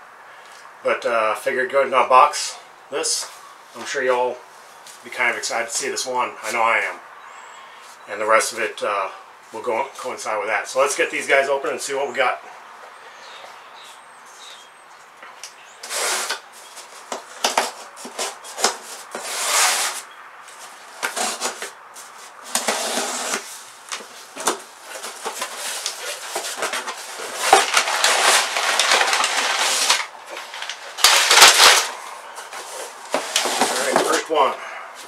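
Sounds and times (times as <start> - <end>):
knife slitting packing tape: 15.8 - 16.4, 17.4 - 20.0, 21.0 - 21.7, 22.5 - 23.5, 24.4 - 32.0
cardboard flaps scraping: 15.8 - 34.5
packing paper rustling: 15.8 - 34.5.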